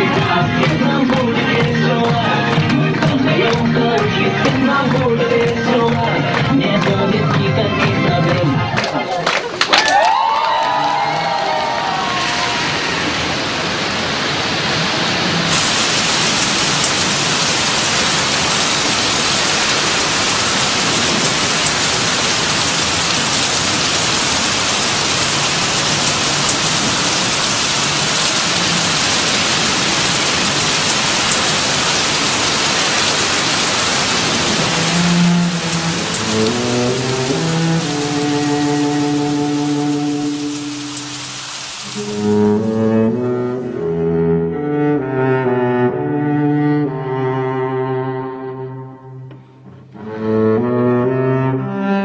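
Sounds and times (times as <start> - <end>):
heavy rain on pavement: 0.0 - 5.5, 9.9 - 43.8.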